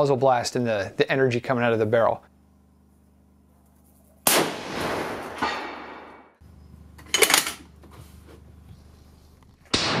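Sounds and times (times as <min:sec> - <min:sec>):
rifle shot: 0:04.2 - 0:06.4, 0:09.7 - 0:10.0.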